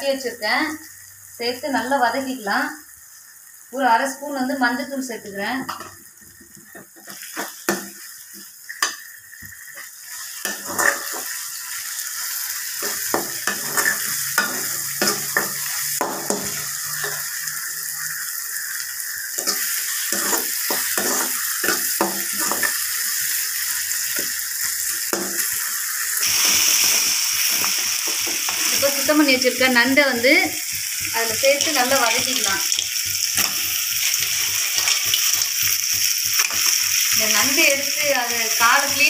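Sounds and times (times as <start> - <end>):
food sizzling in oil: 0.0 - 39.0
metal ladle scraping pan: 9.8 - 11.4, 12.8 - 17.6, 19.3 - 23.0.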